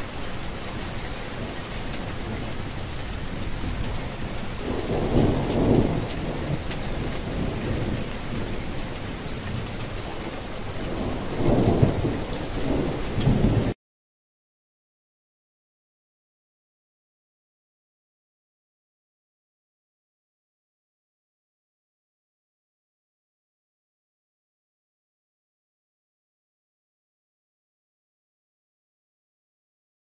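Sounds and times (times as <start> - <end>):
steady rain: 0.0 - 13.8
rolling thunder: 0.1 - 13.8.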